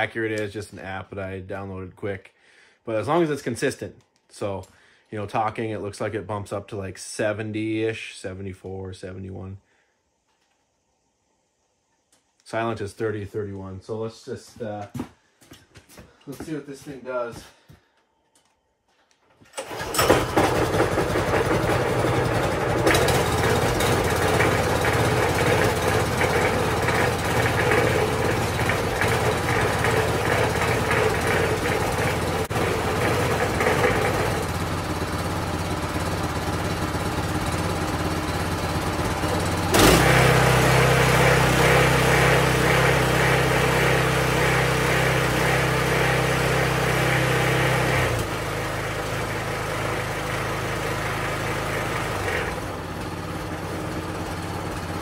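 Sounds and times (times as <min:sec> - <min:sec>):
small engine running: 0:19.6 - 0:55.0.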